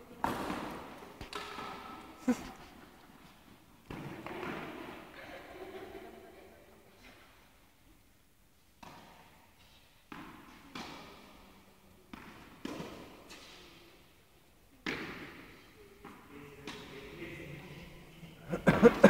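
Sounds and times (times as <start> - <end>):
tennis balls struck by rackets: 0.2 - 5.1, 8.8 - 14.1, 14.8 - 17.0
tennis balls bouncing on hard court: 0.2 - 5.2, 8.8 - 13.8, 14.8 - 16.9.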